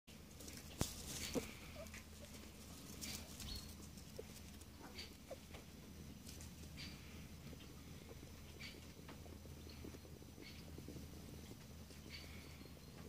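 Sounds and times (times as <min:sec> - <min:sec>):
straw crackling and rustling: 0:00.1 - 0:07.6.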